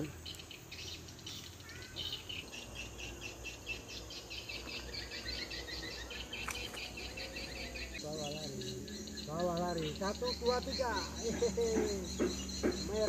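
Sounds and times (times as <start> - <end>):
short bird calls: 0.0 - 10.1
insects chirping: 0.0 - 13.0.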